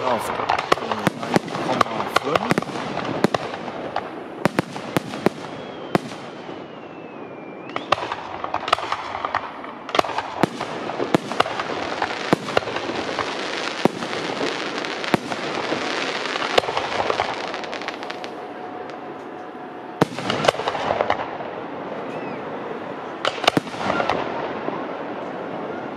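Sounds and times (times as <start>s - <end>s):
continuous crackling noise: 0.0s - 6.8s, 7.5s - 25.9s
fireworks bursting with bangs: 0.0s - 21.6s, 23.2s - 25.5s
descending whistle: 5.4s - 8.1s, 22.1s - 22.7s.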